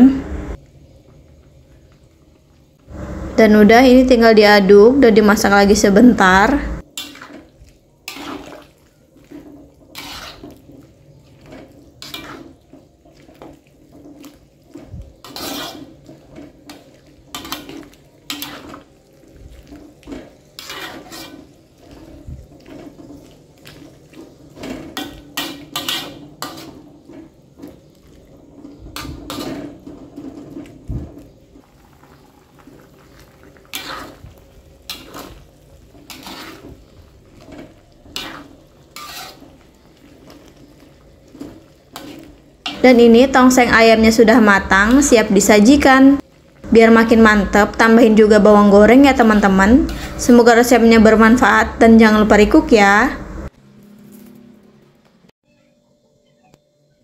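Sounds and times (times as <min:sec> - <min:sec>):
metal ladle scraping a wok: 0:06.8 - 0:45.3, 0:48.9 - 0:51.8.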